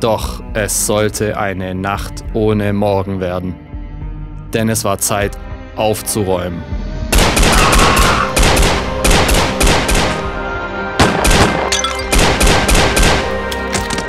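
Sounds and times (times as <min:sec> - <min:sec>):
music: 0:00.0 - 0:14.0
rapid pistol gunfire: 0:07.2 - 0:10.3, 0:11.0 - 0:13.5.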